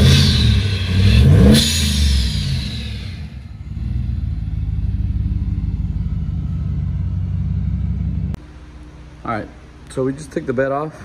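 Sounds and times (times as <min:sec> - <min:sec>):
pickup truck engine revving: 0:00.0 - 0:08.4.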